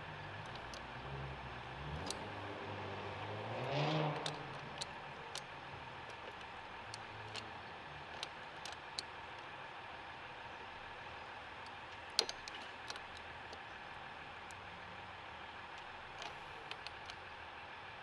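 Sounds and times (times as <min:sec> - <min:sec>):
low vehicle hum: 0:00.0 - 0:18.0
pliers clicking on metal: 0:00.5 - 0:00.9, 0:03.4 - 0:05.5, 0:11.7 - 0:13.6
vehicle passing: 0:01.0 - 0:04.8.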